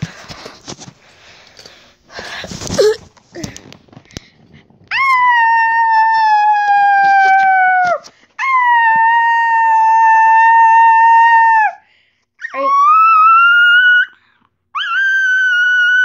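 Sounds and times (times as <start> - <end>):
dog howling: 4.9 - 11.8, 12.5 - 16.0.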